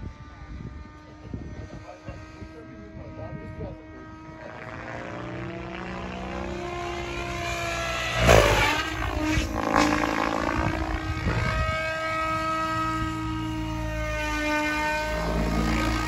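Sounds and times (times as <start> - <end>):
helicopter rotor whine: 0.0 - 16.0
loud rushing burst: 7.8 - 11.7.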